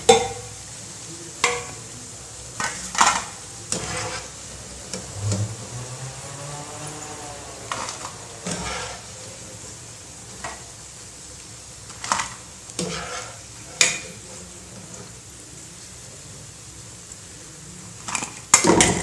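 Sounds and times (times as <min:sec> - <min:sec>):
hot oil sizzling in a pan: 0:00.0 - 0:19.0
skimmer scraping and clinking on pan: 0:02.6 - 0:04.4, 0:07.7 - 0:09.1, 0:12.0 - 0:14.1.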